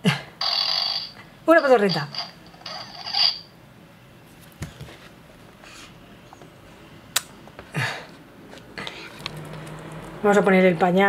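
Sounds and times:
toy doll buzzy raspberry noise: 0.4s - 1.2s.

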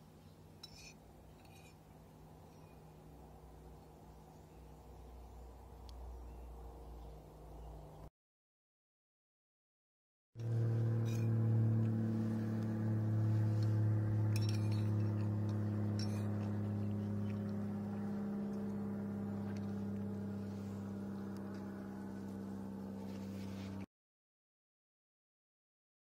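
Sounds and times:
low hum with overtones: 0.0s - 8.1s, 10.4s - 23.9s
fork clinking on china plate: 14.3s - 15.3s, 16.0s - 16.5s.

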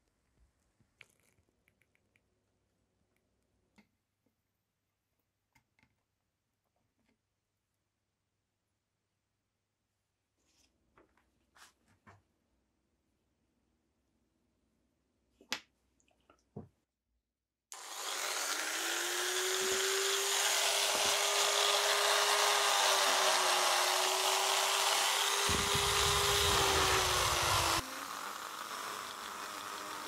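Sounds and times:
rotary tool whining: 17.7s - 30.0s.

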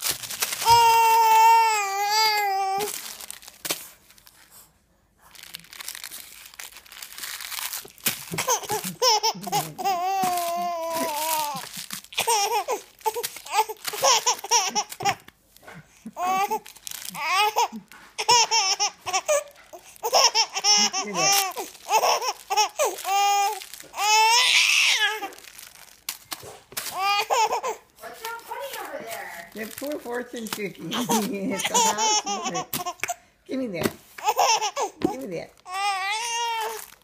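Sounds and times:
baby laughing: 8.1s - 25.4s, 27.0s - 27.8s, 30.9s - 33.2s, 34.2s - 36.8s.

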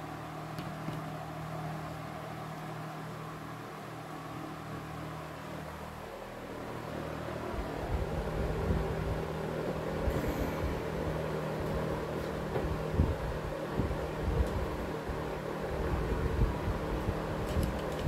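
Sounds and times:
box fan running: 0.0s - 18.0s
air buffeting microphone: 7.4s - 18.0s.

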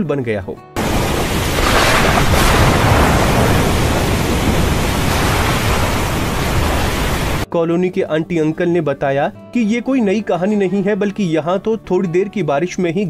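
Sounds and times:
loud rush of water: 0.8s - 7.5s.

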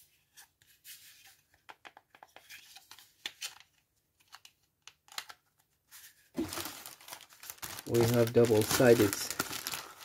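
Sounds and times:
plastic rustling: 6.4s - 10.0s.

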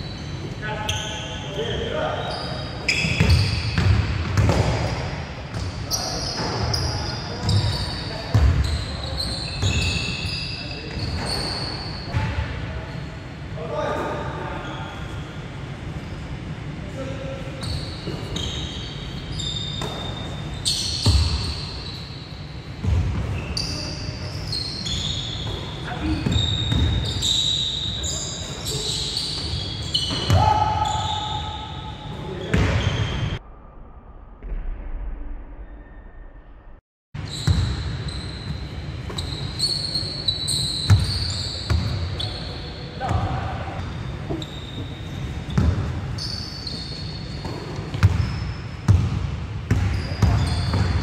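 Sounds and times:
sneakers squeaking on floor: 0.0s - 13.2s, 13.8s - 33.4s, 37.2s - 51.0s.

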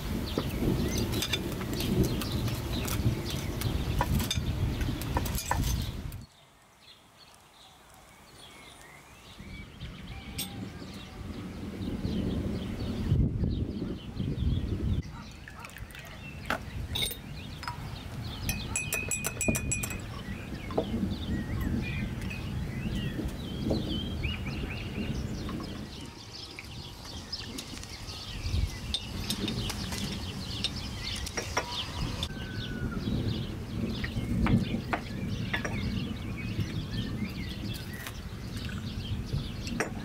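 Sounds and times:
bird chirps: 0.3s - 40.0s
glass and tableware clinks: 16.9s - 20.2s.

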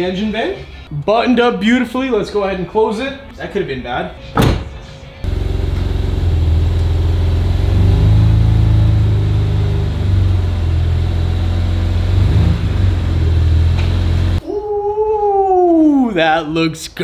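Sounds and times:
car engine idling: 5.3s - 14.4s.

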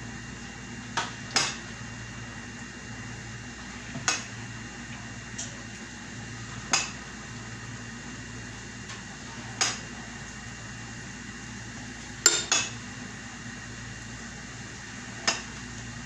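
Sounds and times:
kitchenware clinking on a bowl: 12.2s - 12.7s.

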